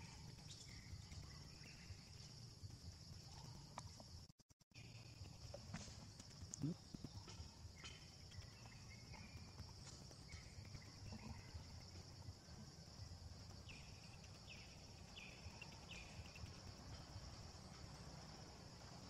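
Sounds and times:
high insect drone: 0:04.8 - 0:19.0.

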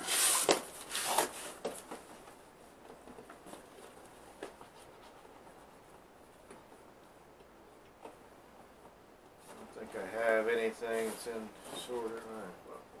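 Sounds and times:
cardboard box rustling and scraping: 0:00.0 - 0:02.0.

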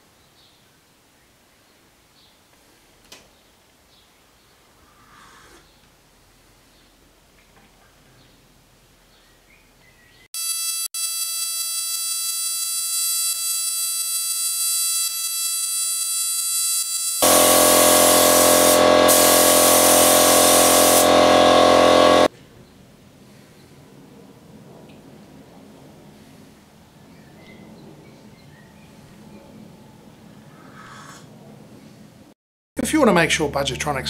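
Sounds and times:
spray gun hissing and whistling: 0:10.4 - 0:22.3.

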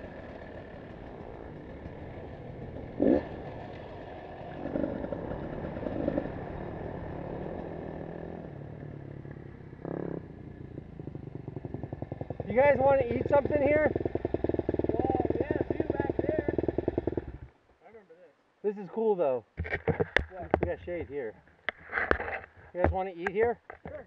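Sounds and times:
dirt bike engine running: 0:00.0 - 0:17.5.

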